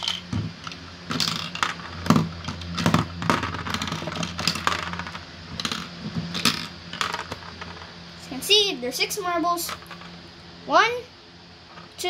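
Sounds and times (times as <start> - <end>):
marbles clattering onto plastic: 0.0 - 7.9
marbles rattling in plastic dispenser: 0.0 - 7.9.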